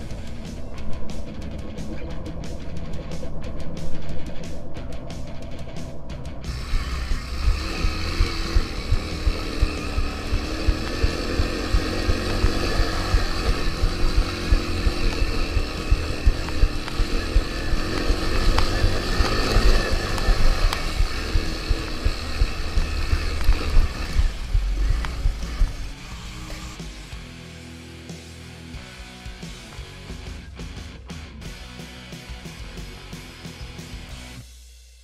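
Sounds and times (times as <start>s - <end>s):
small engine revving: 6.4s - 27.4s.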